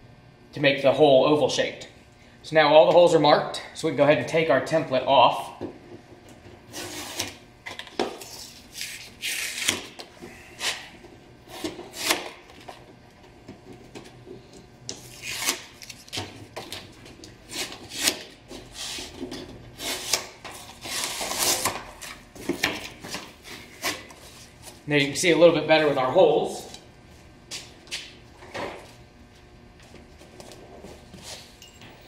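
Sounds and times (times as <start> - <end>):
tape peeling off metal: 14.9 - 16.3.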